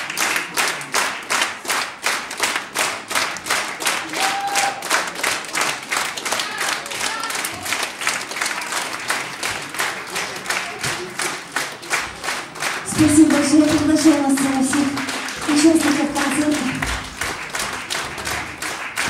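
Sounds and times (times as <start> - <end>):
audience clapping in rhythm: 0.0 - 19.0
woman speaking over microphone: 12.9 - 17.0.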